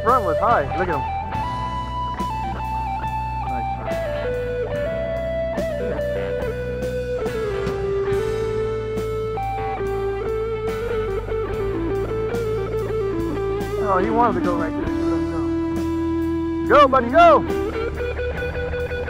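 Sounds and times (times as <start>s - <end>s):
electric guitar lead: 0.0s - 19.0s
low bass notes: 0.0s - 19.0s.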